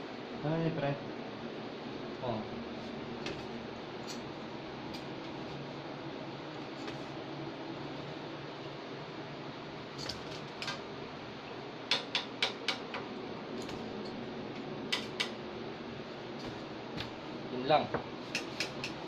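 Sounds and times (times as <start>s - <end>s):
steady low hum: 0.0s - 19.0s
sharp light clicks and taps: 11.9s - 15.4s, 17.9s - 19.0s.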